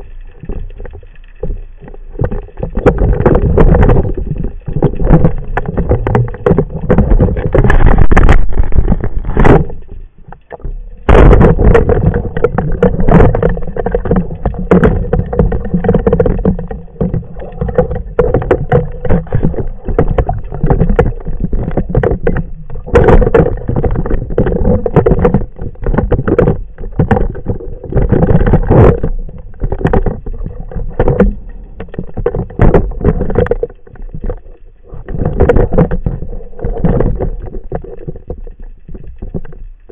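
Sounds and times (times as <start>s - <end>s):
muffled underwater water noise: 0.0s - 39.9s.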